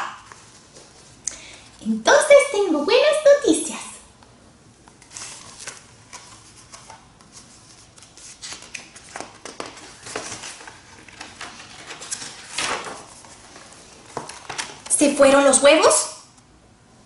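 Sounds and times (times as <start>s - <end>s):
book pages turning: 4.8s - 14.9s.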